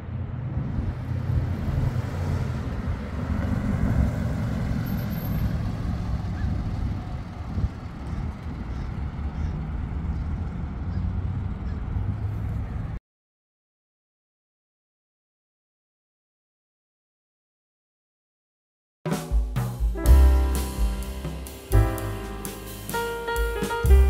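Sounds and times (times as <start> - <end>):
car engine passing by: 0.0 - 13.0.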